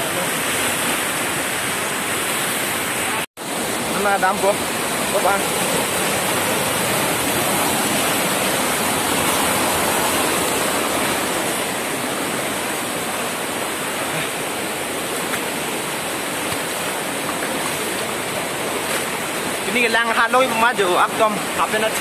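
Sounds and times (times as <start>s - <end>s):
waterfall roaring: 0.0s - 22.0s.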